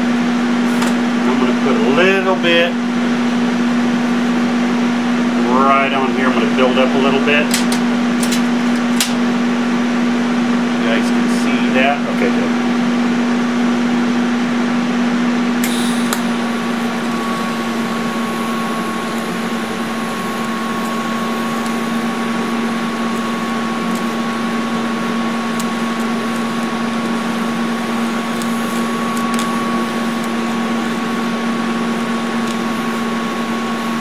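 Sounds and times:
welder arc humming and hissing: 0.0 - 34.0.

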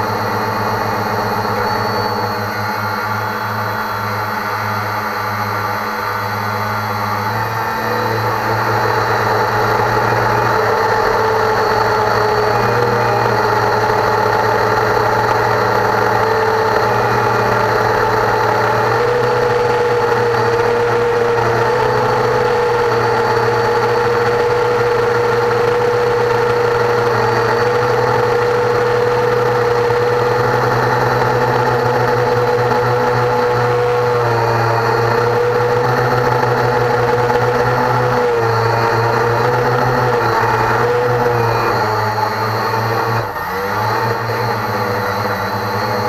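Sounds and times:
quadcopter motors whining: 0.0 - 46.0.

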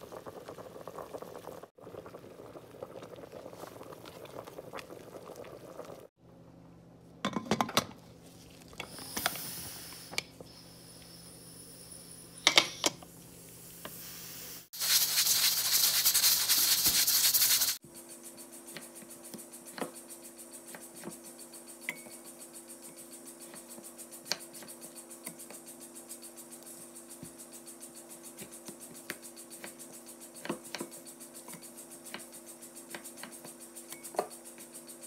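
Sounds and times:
broth boiling: 0.0 - 6.2, 8.1 - 17.8
steam hissing from valve: 8.9 - 12.5, 13.4 - 17.8.

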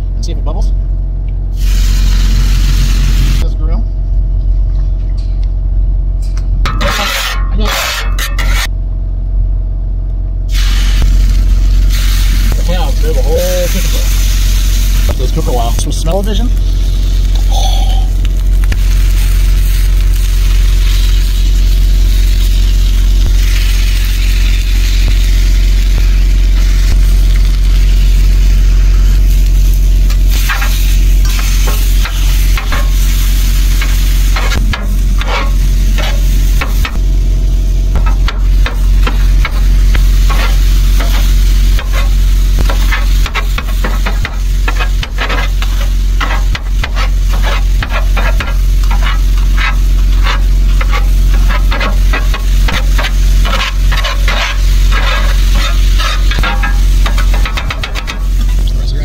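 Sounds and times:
low rumble: 0.0 - 59.0
chicken sizzling on griddle: 1.6 - 3.4, 10.5 - 58.7
metal scraper clacking on griddle: 6.7 - 8.7, 38.0 - 58.6.

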